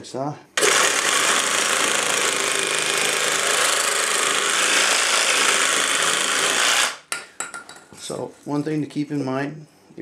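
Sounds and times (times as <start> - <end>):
reciprocating saw cutting plastic pipe: 0.6 - 7.1.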